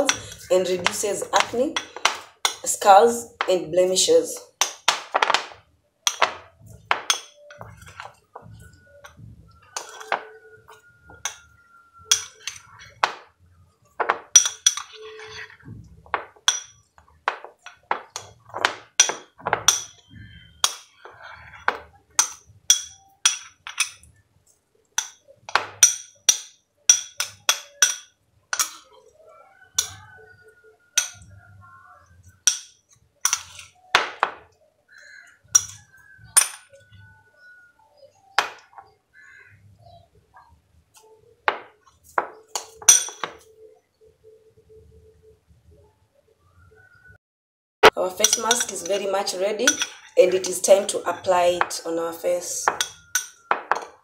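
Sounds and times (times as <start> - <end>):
metal spoon clinking on glass bowl: 0.0 - 2.8, 4.2 - 13.3, 14.0 - 15.6, 16.2 - 24.2, 25.0 - 34.4, 35.5 - 38.9, 41.5 - 43.6, 48.0 - 51.8, 52.4 - 54.0.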